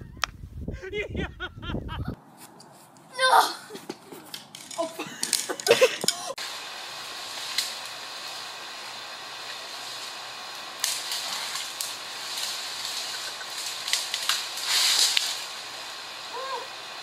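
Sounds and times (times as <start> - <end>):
branches rustling and scraping: 3.7 - 17.0
twigs snapping: 7.2 - 8.4, 9.5 - 15.6.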